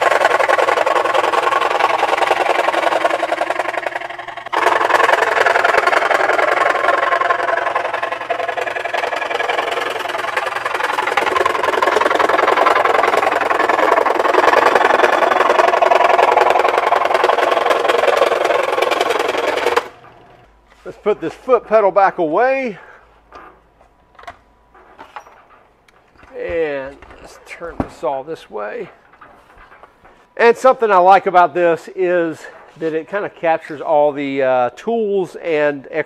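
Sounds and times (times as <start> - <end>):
scroll saw cutting plywood: 0.0 - 21.9.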